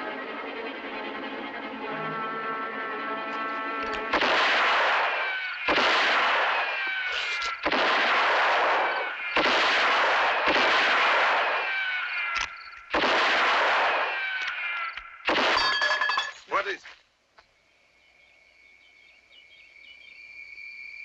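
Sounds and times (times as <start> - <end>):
ricochet whine: 3.0 - 15.8.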